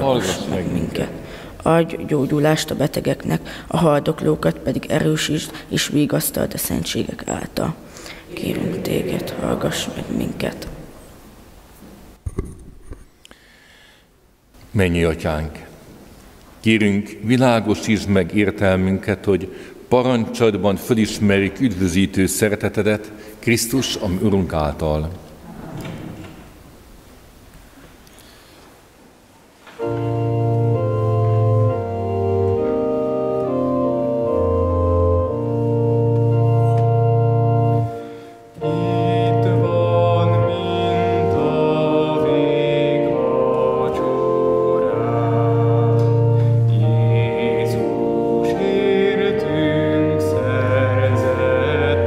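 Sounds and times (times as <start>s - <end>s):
organ chords: 0.0s - 4.3s, 7.3s - 11.4s, 29.7s - 52.0s
higher melody with vibrato: 29.8s - 52.0s.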